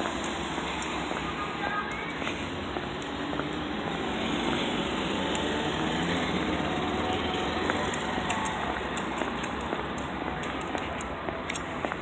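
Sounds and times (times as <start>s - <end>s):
low rumble of traffic: 0.0s - 12.0s.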